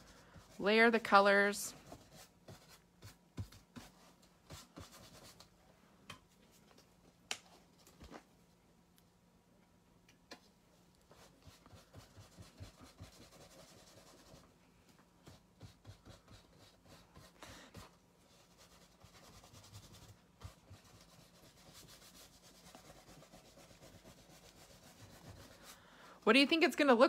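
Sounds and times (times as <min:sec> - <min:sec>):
fingers rubbing paint on canvas: 0:11.1 - 0:14.5, 0:18.4 - 0:25.8.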